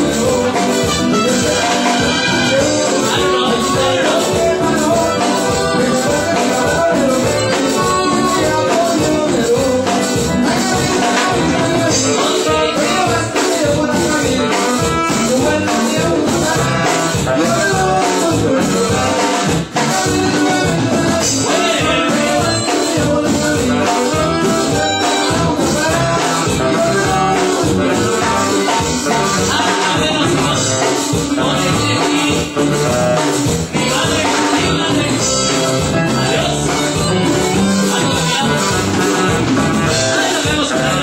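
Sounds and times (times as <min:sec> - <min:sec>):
live band playing latin dance music: 0:00.0 - 0:41.0
person singing: 0:00.0 - 0:41.0.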